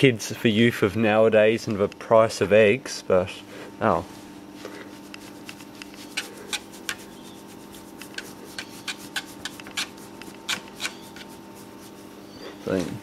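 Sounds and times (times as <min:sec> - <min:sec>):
faint steady hum: 0:00.0 - 0:13.0
hand rubbing dog fur: 0:04.0 - 0:13.0.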